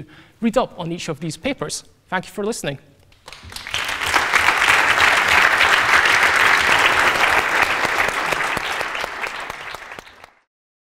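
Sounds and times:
audience applauding: 3.2s - 10.5s.

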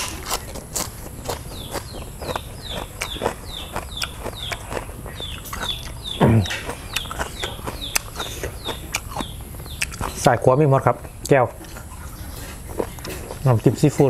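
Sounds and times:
chewing with wet mouth smacks: 0.0s - 14.0s
person humming low: 6.2s - 6.6s.

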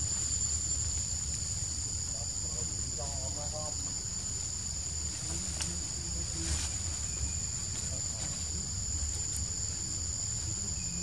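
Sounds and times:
insect chorus drone: 0.0s - 11.0s.

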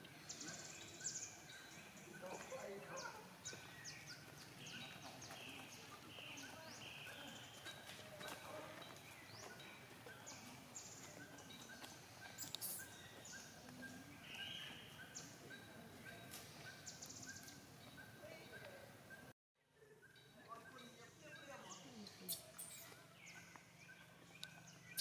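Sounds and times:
high animal chirps and squeaks: 12.3s - 13.0s, 22.0s - 23.1s.

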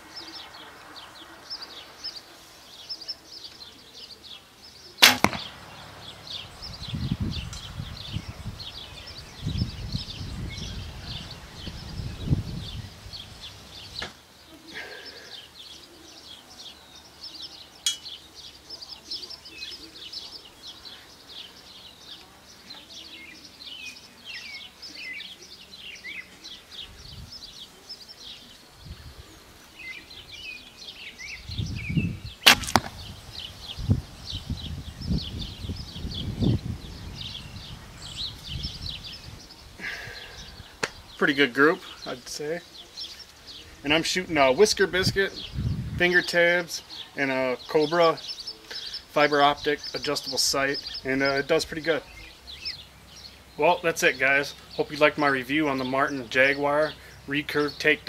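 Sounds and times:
birds singing: 0.0s - 58.0s
arrow hitting foam target: 5.0s - 5.6s, 32.4s - 33.1s
wind rumble on microphone: 5.7s - 14.0s, 26.8s - 27.4s, 28.8s - 29.4s, 31.3s - 41.2s, 44.8s - 46.1s.

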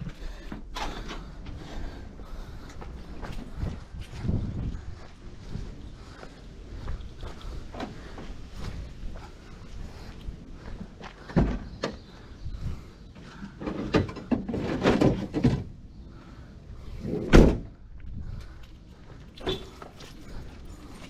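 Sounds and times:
van door slamming: 17.2s - 17.7s.

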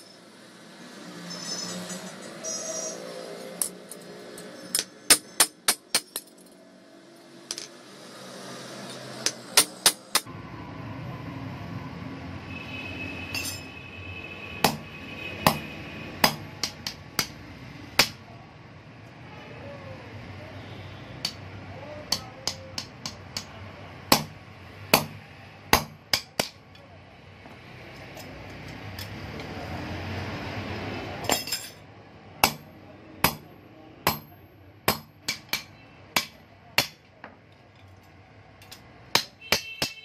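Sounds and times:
hammer striking anvil: 4.7s - 6.5s, 9.2s - 10.3s, 14.6s - 17.4s, 24.1s - 26.6s, 32.4s - 37.1s, 38.6s - 40.0s.

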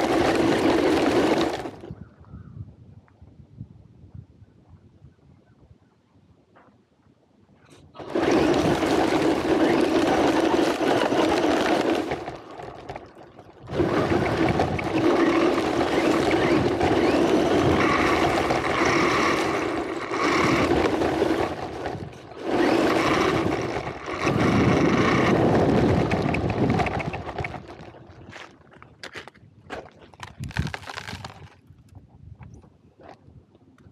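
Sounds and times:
radio-controlled car motor: 0.0s - 1.8s, 8.0s - 27.8s
tyres crunching on gravel: 8.1s - 31.6s.

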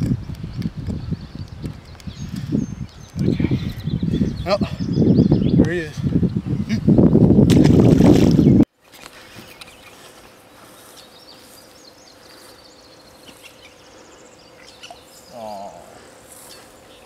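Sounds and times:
birds chirping: 0.0s - 17.0s
wavering voice-like sound: 15.3s - 16.0s.

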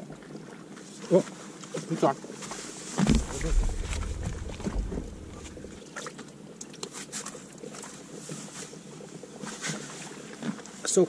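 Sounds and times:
small knocks: 3.0s - 5.8s
wind rumbling on microphone: 3.0s - 5.8s.

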